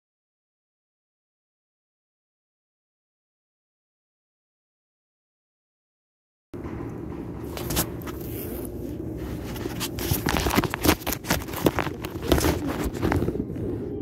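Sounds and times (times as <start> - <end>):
steady low hum: 6.6 - 14.0
phone handling noise: 7.5 - 13.4.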